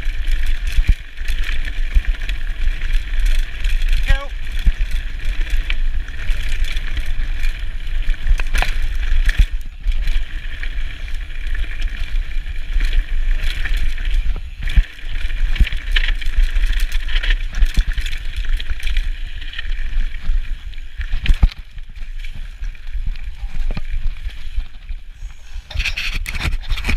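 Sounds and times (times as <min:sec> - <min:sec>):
bike rattling over stones: 0:00.0 - 0:26.9
wind rumble on microphone: 0:00.0 - 0:26.9.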